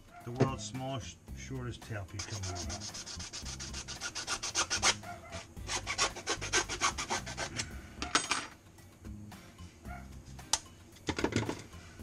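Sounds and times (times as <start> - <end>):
hand tool rasping on metal: 2.2 - 5.0, 5.6 - 7.7.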